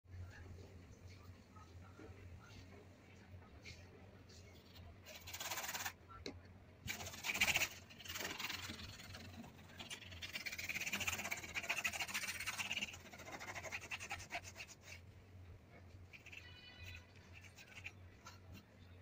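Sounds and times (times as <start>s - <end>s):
paintbrush scrubbing on canvas: 6.9s - 15.1s, 16.1s - 18.6s.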